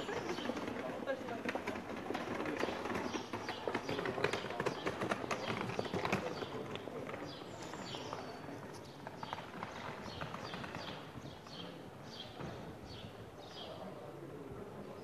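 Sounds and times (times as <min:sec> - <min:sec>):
faint voices: 0:00.0 - 0:15.0.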